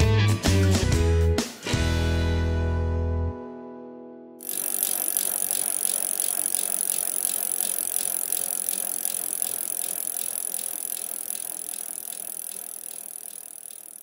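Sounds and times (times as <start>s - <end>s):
bicycle freewheel ticking: 4.4s - 14.0s.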